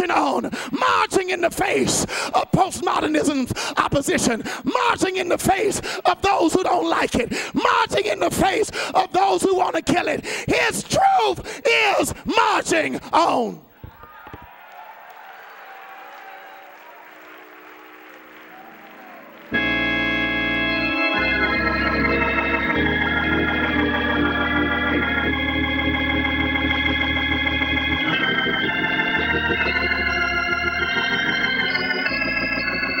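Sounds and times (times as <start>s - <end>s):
organ chords over deep bass: 19.2s - 33.0s.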